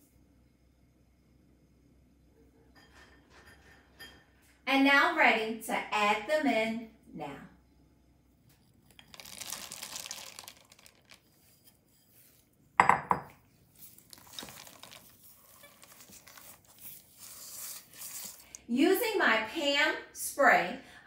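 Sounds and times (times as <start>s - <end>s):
chocolate chips poured into bowl: 8.9s - 11.4s, 14.0s - 18.6s.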